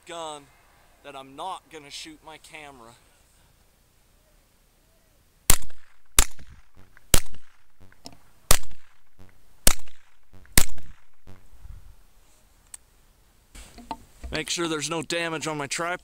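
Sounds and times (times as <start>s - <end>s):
shotgun shots ringing: 5.5s - 7.7s, 8.5s - 9.0s, 9.6s - 11.4s.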